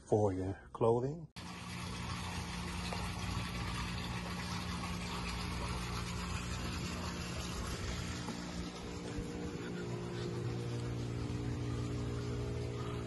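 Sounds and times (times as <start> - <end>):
mechanical hum: 1.4 - 13.0.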